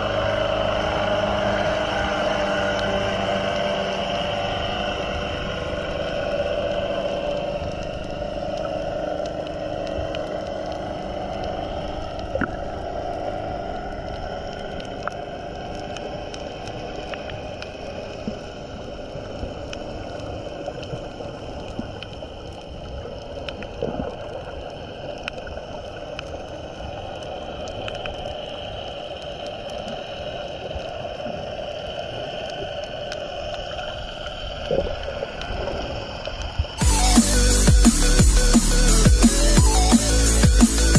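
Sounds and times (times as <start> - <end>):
underwater noise wash: 0.0 - 40.9
faint underwater clicks: 5.5 - 36.8.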